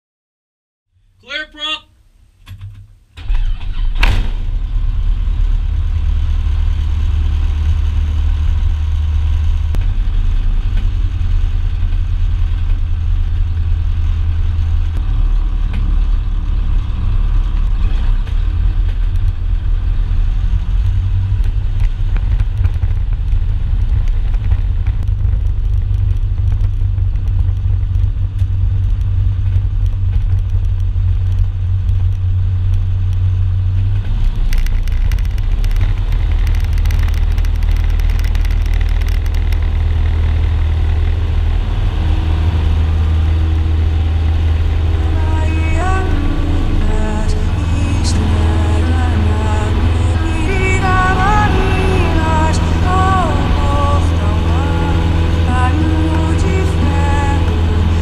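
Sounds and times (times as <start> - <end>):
aircraft engine droning: 33.9 - 58.0.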